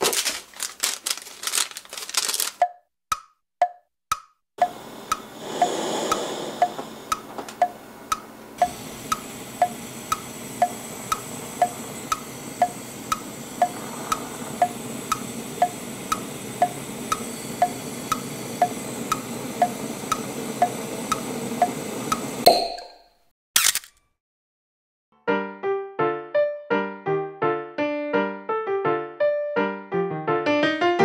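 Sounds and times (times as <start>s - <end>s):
clock-like ticking: 2.6s - 22.3s
gas flames hissing: 4.6s - 22.5s.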